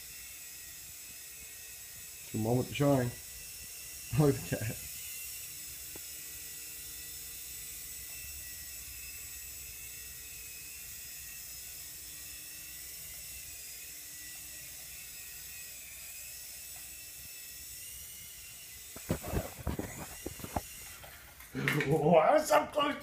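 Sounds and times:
small helicopter rotors whining: 0.0 - 23.0.

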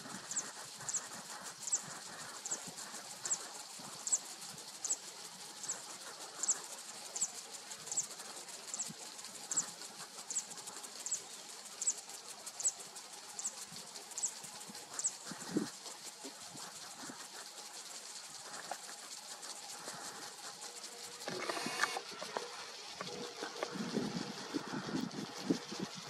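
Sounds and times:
faint outdoor hiss: 0.0 - 26.0
high thin chirps: 0.0 - 26.0.

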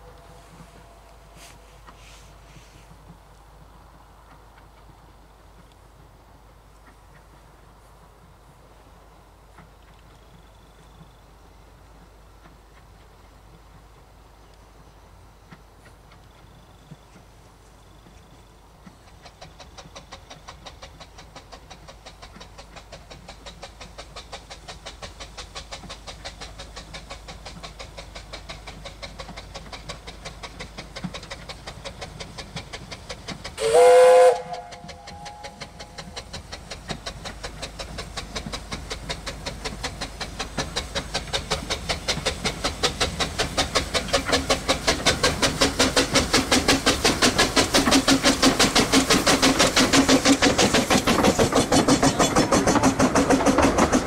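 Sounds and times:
steam locomotive exhaust beats: 0.0 - 54.0
loud train whistle: 33.6 - 35.8.

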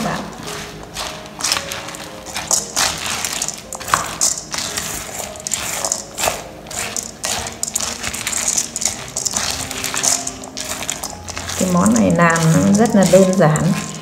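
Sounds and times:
spoon stirring grains in metal bowl: 0.0 - 14.0.

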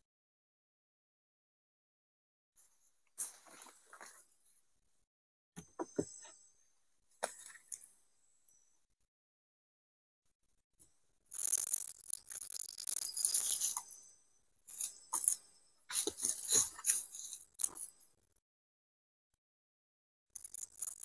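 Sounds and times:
bamboo poles rattling and scraping: 11.3 - 14.1, 14.7 - 18.1.

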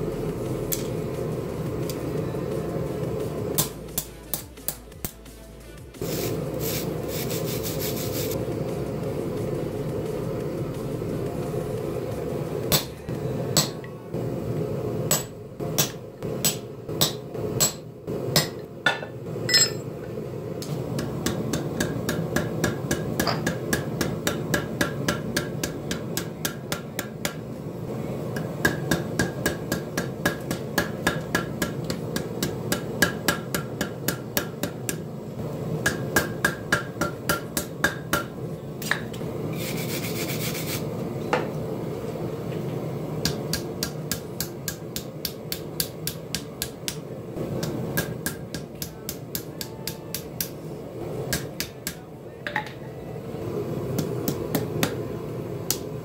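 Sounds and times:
hammer striking steel on anvil: 3.6 - 4.8, 12.7 - 13.9, 15.1 - 20.0, 20.9 - 27.4, 28.3 - 35.1, 35.8 - 39.2, 43.2 - 50.6, 51.3 - 52.8.

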